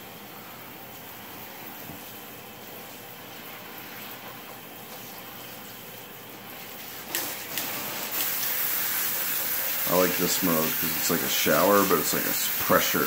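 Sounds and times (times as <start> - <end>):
hose spraying into bathtub: 6.5 - 13.0.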